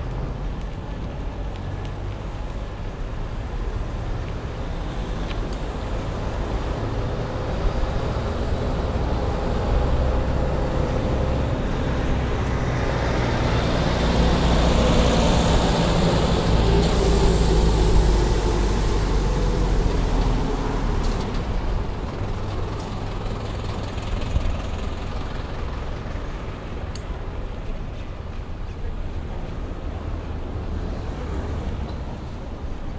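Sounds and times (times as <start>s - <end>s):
heavy vehicle engine running: 5.7s - 27.7s
air hiss burst: 16.8s - 18.4s.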